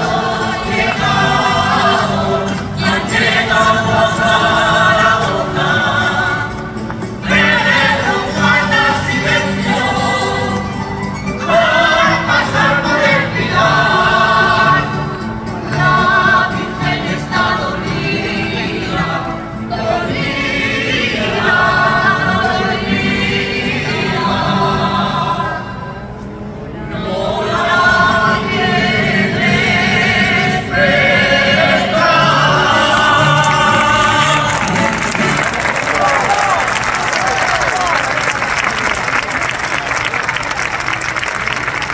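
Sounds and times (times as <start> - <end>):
guitars and plucked strings: 0.0 - 24.8
voices singing with vibrato: 0.0 - 26.0, 26.7 - 37.6.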